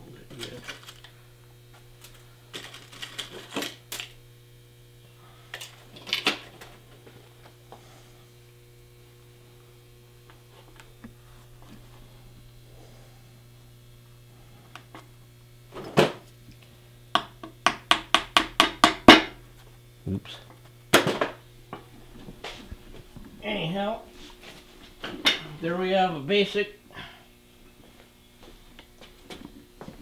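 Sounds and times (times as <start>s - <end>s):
steady hum: 0.0s - 30.0s
metal tools clattering: 2.0s - 4.1s
tack hammer knock: 17.2s - 19.4s.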